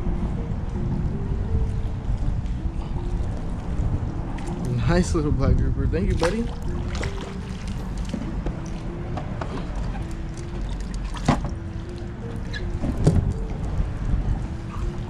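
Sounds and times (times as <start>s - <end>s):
steady low rumble: 0.0s - 15.0s
water lapping against kayak hull: 6.0s - 15.0s
sharp splashes or knocks: 6.1s - 8.7s.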